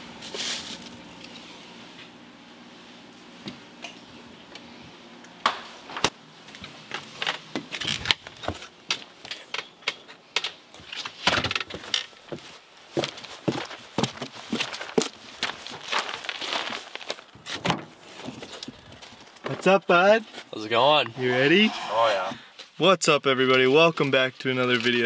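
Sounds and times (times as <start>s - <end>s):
footsteps on wooden deck: 11.5s - 19.7s
clothing rustle: 12.3s - 17.3s.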